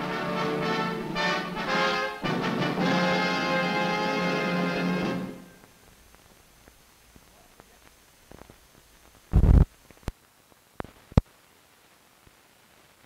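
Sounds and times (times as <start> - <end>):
film soundtrack hiss: 0.0 - 13.0
sharp pops: 5.6 - 10.2.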